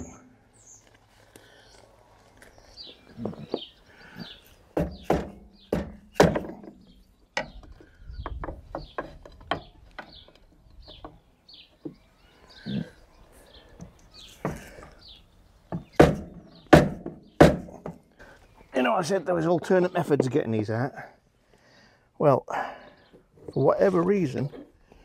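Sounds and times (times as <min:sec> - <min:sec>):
birds chirping: 0:00.0 - 0:25.0
hammer knocking on wooden block: 0:15.7 - 0:18.0.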